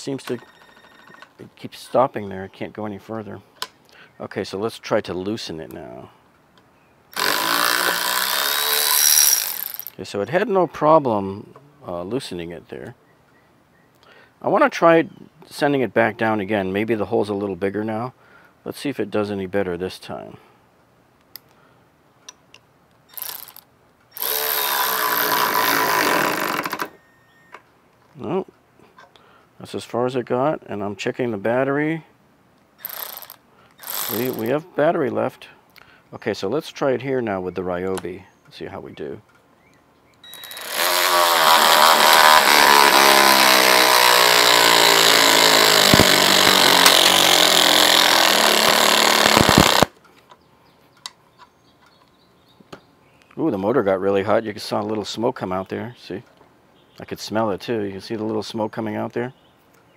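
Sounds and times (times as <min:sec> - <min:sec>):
cordless ratchet driving screw: 0:07.2 - 0:10.0, 0:23.1 - 0:23.6, 0:24.2 - 0:26.9, 0:32.8 - 0:34.5, 0:40.3 - 0:49.9.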